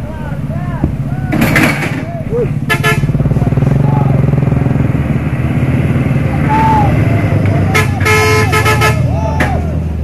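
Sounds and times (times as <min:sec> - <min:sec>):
diesel truck engines under load: 0:00.0 - 0:10.0
truck horn tooting: 0:02.4 - 0:04.3, 0:06.4 - 0:09.4.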